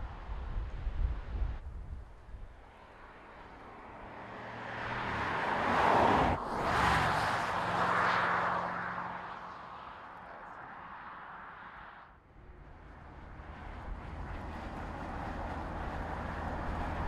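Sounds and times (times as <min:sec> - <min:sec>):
car engine passing by: 0:03.0 - 0:17.0.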